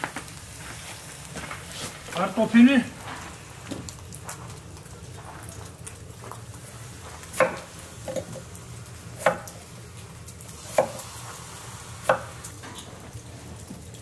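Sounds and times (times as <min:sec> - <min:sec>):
low steady hum: 0:00.0 - 0:14.0
knife chopping on cutting board: 0:07.4 - 0:08.2, 0:10.7 - 0:11.0.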